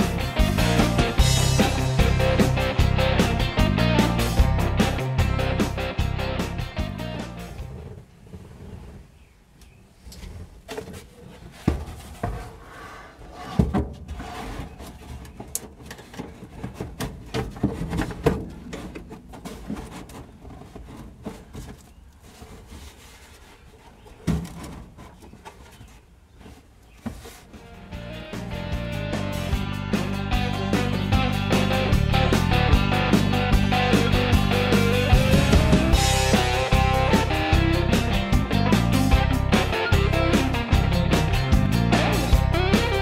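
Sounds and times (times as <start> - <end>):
knocking tapping and rustling: 7.8 - 12.6, 13.4 - 27.7.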